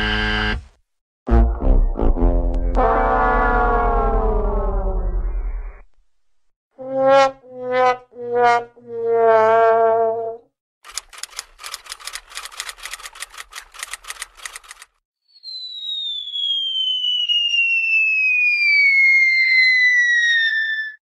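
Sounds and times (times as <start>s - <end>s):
faint rising tone: 1.6s - 5.9s
rapid irregular clicking: 10.8s - 15.0s
high whistle sliding down: 15.2s - 21.0s.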